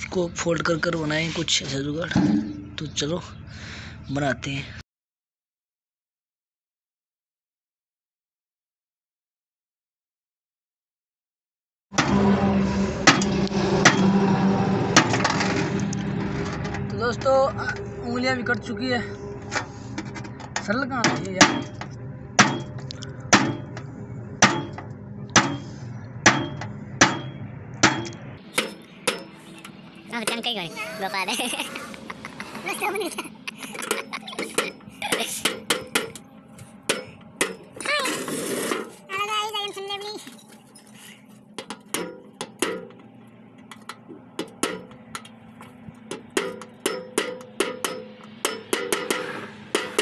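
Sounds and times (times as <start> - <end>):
metal pipe knocking sheet steel: 2.1 - 2.7, 12.0 - 12.4, 13.0 - 14.2, 14.9 - 16.8, 19.5 - 29.4, 33.8 - 36.2, 36.8 - 37.7, 41.6 - 43.0, 44.4 - 45.3, 46.0 - 50.0
hammer striking metal tin: 2.2 - 2.6, 13.0 - 14.2, 20.0 - 23.8, 24.4 - 25.7, 26.3 - 29.4, 33.8 - 36.2, 36.8 - 37.7, 41.6 - 43.0, 43.8 - 45.3, 46.1 - 50.0.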